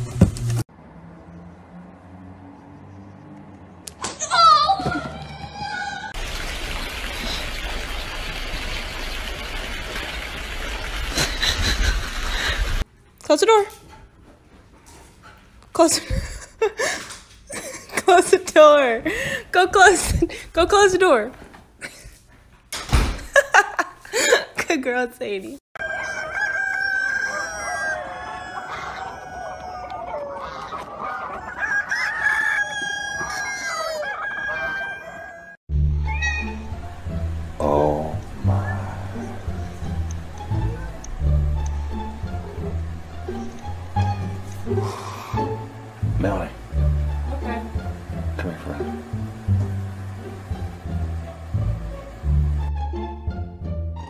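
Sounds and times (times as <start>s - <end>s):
roosters crowing: 25.8s - 46.0s
hens clucking: 28.1s - 31.9s
rushing noise with low rumble: 38.2s - 44.8s.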